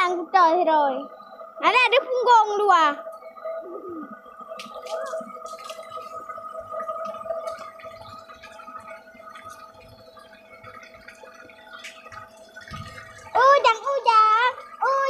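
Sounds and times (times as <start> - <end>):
steady hum: 0.0 - 15.0
small water splashes: 4.4 - 15.0
water pouring into a tub: 4.6 - 15.0.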